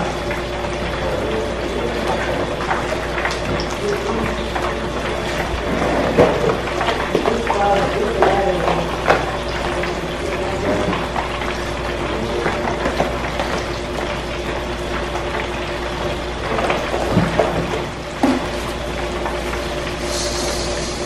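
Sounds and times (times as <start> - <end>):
steady hiss: 20.0 - 21.0.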